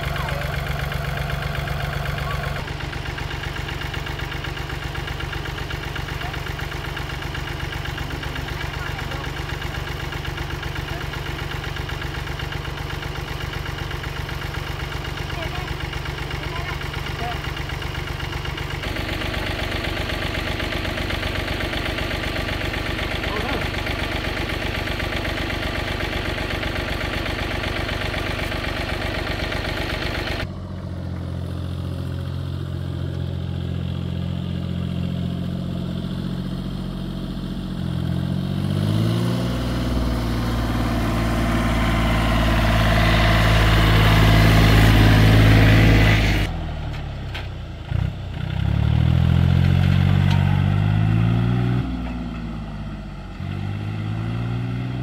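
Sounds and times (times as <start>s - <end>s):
farm machine engine revving: 0.0s - 55.0s.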